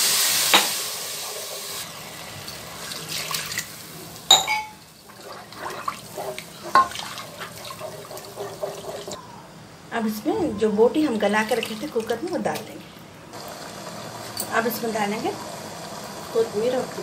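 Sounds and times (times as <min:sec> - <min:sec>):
masala sizzling in a pan: 0:00.0 - 0:09.2
wooden spoon stirring gravy: 0:05.0 - 0:09.2.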